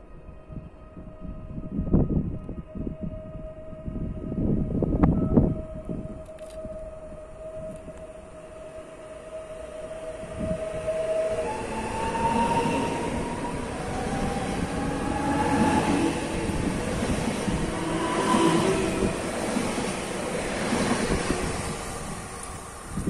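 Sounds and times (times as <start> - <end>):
wheels rumbling on rails: 4.0 - 23.0
electric train motors whining: 5.0 - 23.0.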